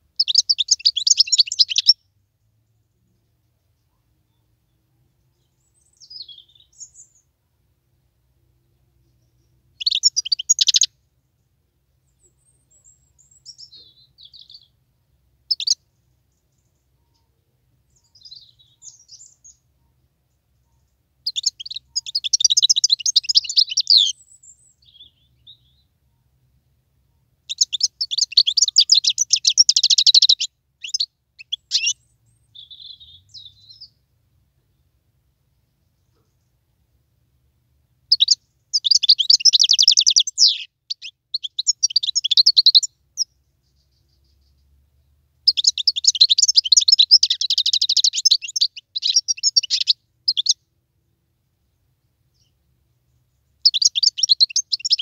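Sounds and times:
finch twittering: 0.2s - 2.0s, 9.8s - 10.9s, 15.5s - 15.8s, 21.3s - 24.1s, 27.5s - 32.0s, 38.1s - 44.1s, 45.5s - 50.6s, 53.6s - 55.0s
high-pitched bird trilling: 0.2s - 2.0s, 9.8s - 10.9s, 15.5s - 15.8s, 21.3s - 24.2s, 27.5s - 32.0s, 38.1s - 43.3s, 45.5s - 50.6s, 53.6s - 55.0s.

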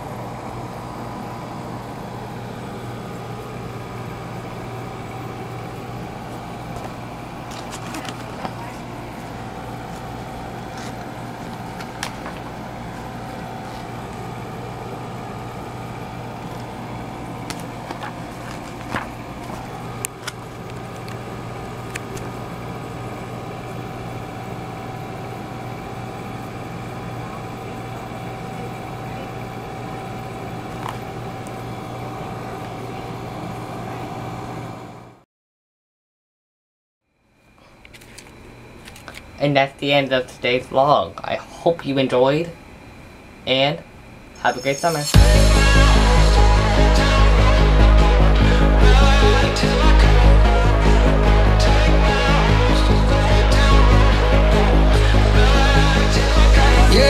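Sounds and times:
mechanical hum: 0.0s - 35.2s, 37.1s - 57.0s
pages handled clicks and rustles: 6.8s - 8.6s, 10.7s - 13.0s, 17.4s - 21.2s, 37.9s - 39.3s.

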